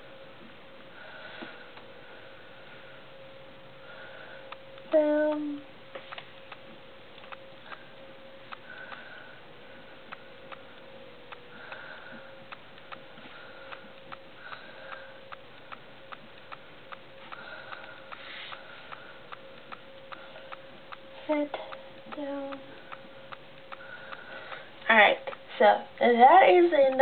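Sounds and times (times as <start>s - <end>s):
faint steady hum: 0.0s - 27.0s
faint ticking: 0.4s - 27.0s.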